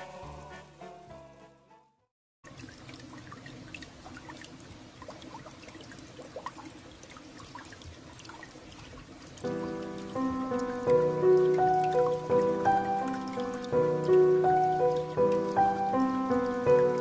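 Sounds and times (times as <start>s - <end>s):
music: 0.0s - 2.1s, 9.5s - 17.0s
water dripping: 2.4s - 17.0s
water trickling: 2.4s - 17.0s.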